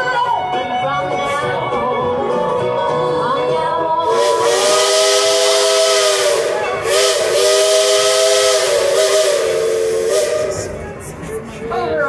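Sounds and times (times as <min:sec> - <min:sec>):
steam hiss: 0:04.1 - 0:10.8
steam locomotive chime whistle: 0:04.1 - 0:10.8.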